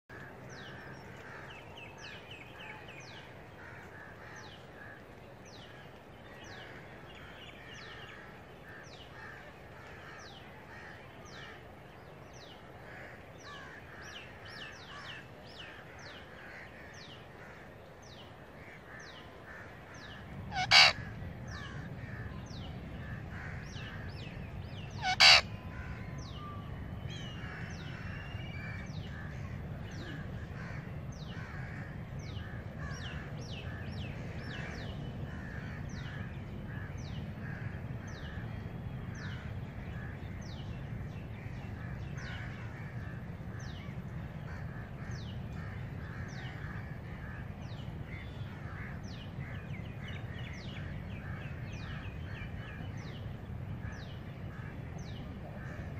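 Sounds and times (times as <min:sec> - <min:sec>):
wild birds chirping: 0:00.1 - 0:55.9
parakeet calls: 0:18.6 - 0:21.8, 0:24.9 - 0:25.9.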